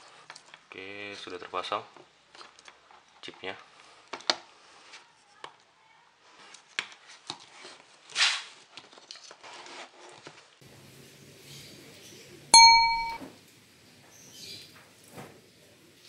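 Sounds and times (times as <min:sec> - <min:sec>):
loud bell-like ding: 0:12.6 - 0:13.3.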